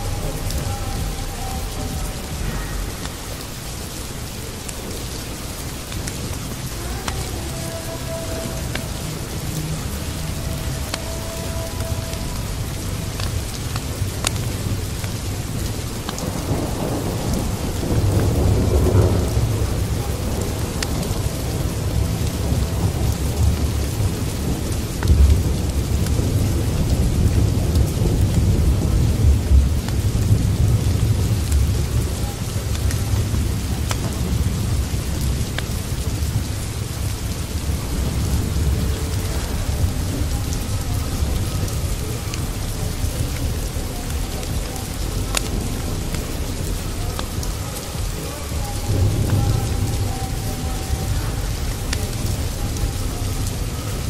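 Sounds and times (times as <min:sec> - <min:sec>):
rumbling thunder: 0:00.0 - 0:54.0
steady rain: 0:00.0 - 0:54.0.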